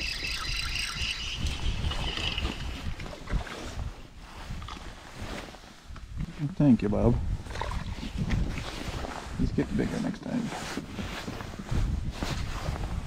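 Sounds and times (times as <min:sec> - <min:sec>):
water sloshing around hull: 0:00.0 - 0:06.2, 0:07.2 - 0:13.0
wind buffeting microphone: 0:00.0 - 0:13.0.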